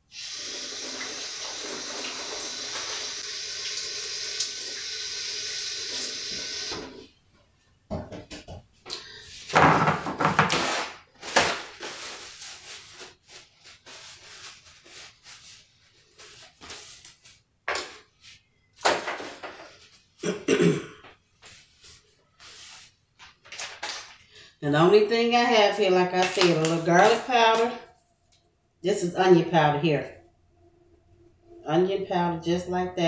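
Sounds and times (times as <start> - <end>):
paper towel rustling: 9.4 - 18.5, 21.3 - 24.2
paper towel tearing: 10.3 - 17.4.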